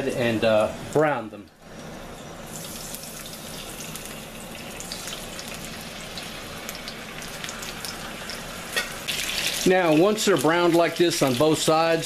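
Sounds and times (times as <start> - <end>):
chicken sizzling in oil: 1.7 - 12.0.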